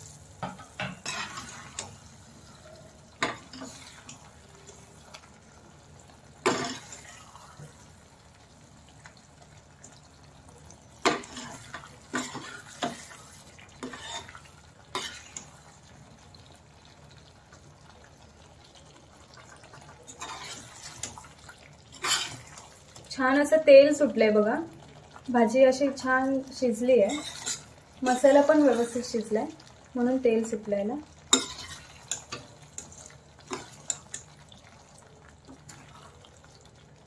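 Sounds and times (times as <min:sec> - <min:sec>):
ladle stirring and scraping pan: 0:00.0 - 0:04.9, 0:06.4 - 0:07.8, 0:11.0 - 0:15.8, 0:19.4 - 0:23.2, 0:26.9 - 0:29.2, 0:31.2 - 0:34.8
curry gravy simmering and popping: 0:00.2 - 0:37.0.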